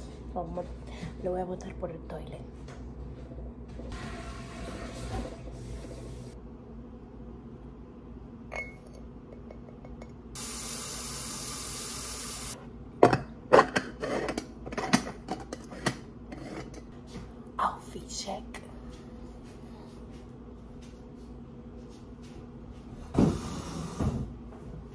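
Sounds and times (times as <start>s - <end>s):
steady hiss: 10.4s - 12.6s.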